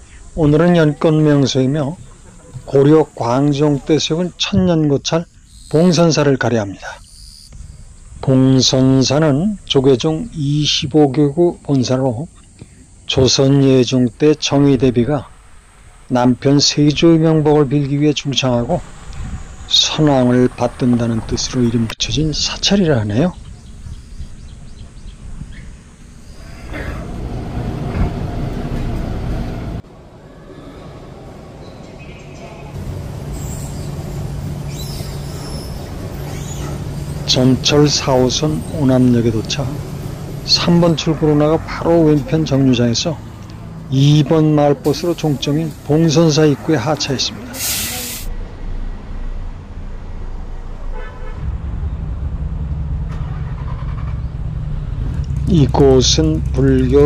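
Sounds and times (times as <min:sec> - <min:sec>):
subway train rumbling: 0:14.7 - 0:57.0
short horn toot: 0:50.9 - 0:51.6.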